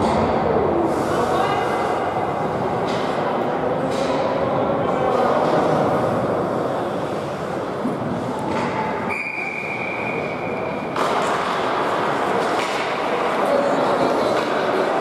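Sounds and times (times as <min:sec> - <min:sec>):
ice hockey game din: 0:00.0 - 0:15.0
high whistle-like tone: 0:09.1 - 0:10.6.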